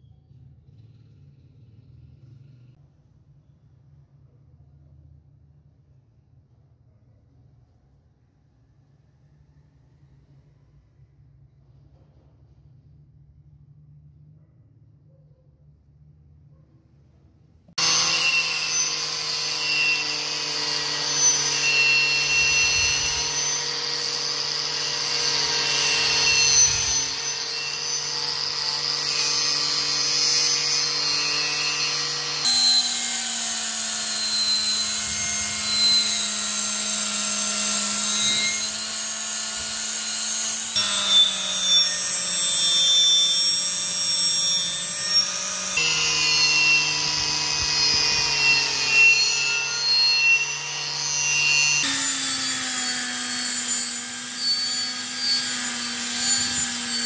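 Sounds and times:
angle grinder wire brush scraping: 17.8s - 57.0s.

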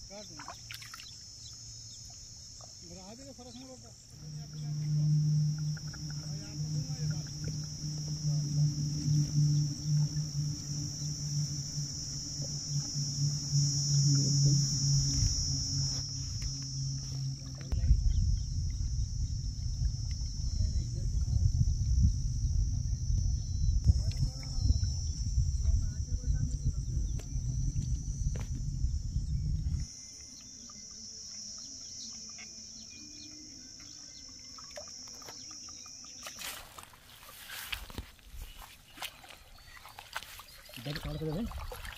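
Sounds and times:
insects buzzing: 0.0s - 41.9s
low unsteady hum: 0.0s - 41.9s
low rumble: 4.1s - 29.9s
rushing splashy water: 39.1s - 41.9s.

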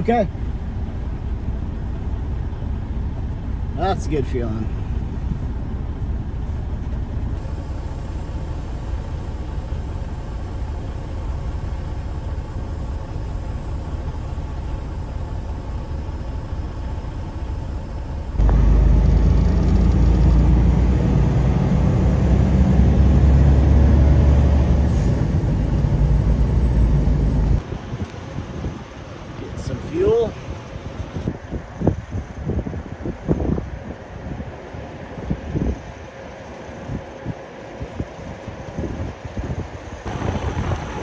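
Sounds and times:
diesel truck engine rumble: 0.0s - 27.6s, 31.3s - 41.0s
faint whine rising in pitch: 7.4s - 27.6s.

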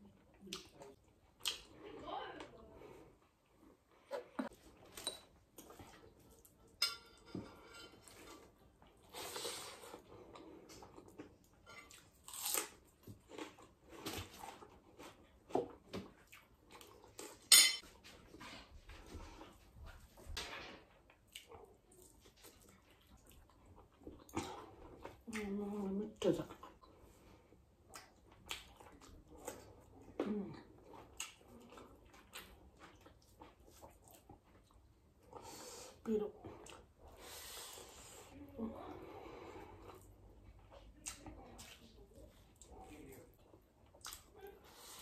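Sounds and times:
person chewing: 0.3s - 1.8s, 8.0s - 17.5s, 21.1s - 25.5s, 26.5s - 35.8s, 39.4s - 45.0s
wet mouth smacks and chewing: 0.5s - 1.7s, 27.9s - 29.7s, 43.8s - 44.3s
loud crunch of cucumber bite: 12.2s - 13.5s.

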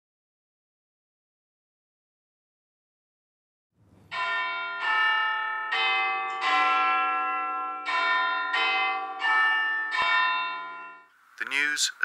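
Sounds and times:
tower bells chiming: 4.1s - 11.2s.

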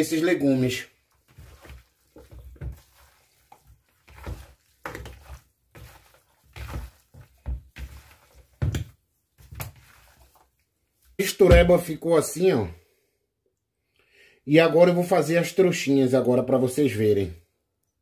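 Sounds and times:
wet squelches of mixing food: 0.0s - 12.0s.

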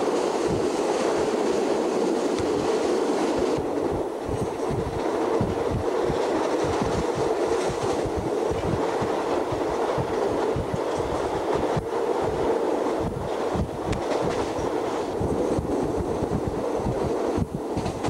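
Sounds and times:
train rumbling and rushing: 0.0s - 18.0s.

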